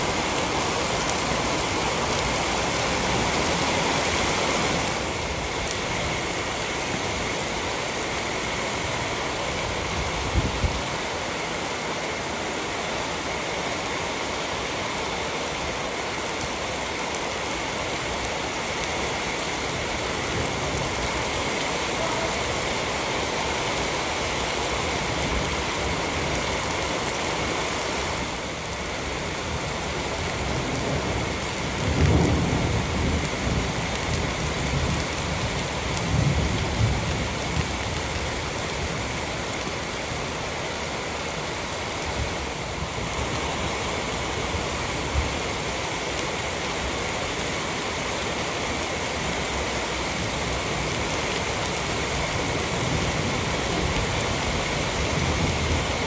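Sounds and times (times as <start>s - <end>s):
rain falling on concrete: 0.0s - 56.0s
thunder rumbles: 30.5s - 37.9s.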